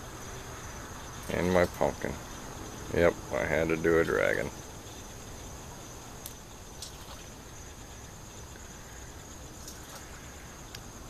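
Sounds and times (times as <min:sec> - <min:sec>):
crickets trilling: 0:00.0 - 0:11.0
faint ticks: 0:06.2 - 0:07.3, 0:09.6 - 0:10.9.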